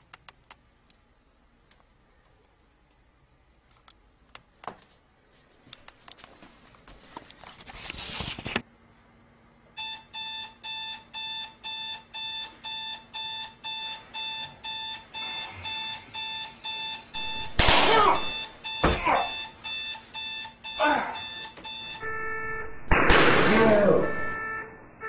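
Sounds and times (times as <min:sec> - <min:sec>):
alarm clock beeping: 0:09.8 - 0:17.6, 0:18.2 - 0:22.9, 0:23.9 - 0:24.9
loud sudden noise: 0:17.3 - 0:18.4, 0:22.1 - 0:25.0.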